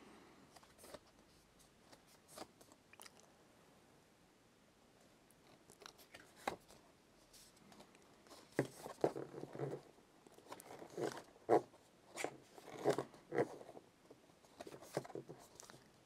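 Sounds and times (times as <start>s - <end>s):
paper and cardboard rustling: 5.9s - 13.8s, 14.4s - 15.8s.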